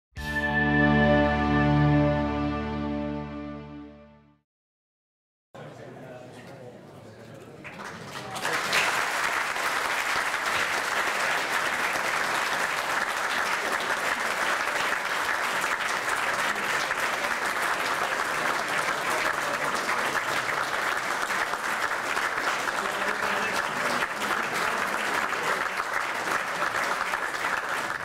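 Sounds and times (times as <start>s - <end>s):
crowd applauding: 7.6s - 28.0s.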